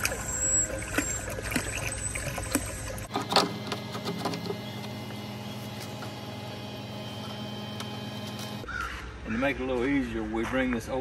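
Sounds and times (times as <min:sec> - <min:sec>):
water pouring into a bucket: 0:00.0 - 0:03.1
pump humming: 0:00.0 - 0:08.6.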